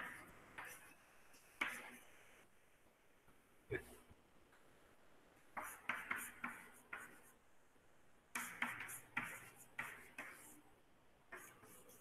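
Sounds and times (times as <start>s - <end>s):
chalk scratching on chalkboard: 0.0s - 2.2s, 5.6s - 7.4s, 8.3s - 10.6s, 11.3s - 12.0s.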